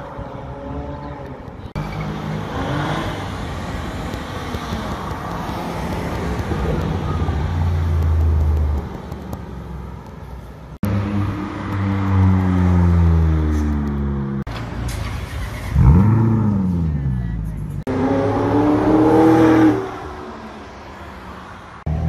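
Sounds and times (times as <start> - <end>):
street traffic: 0.0 - 22.0
sports car engine accelerating hard: 15.8 - 16.8.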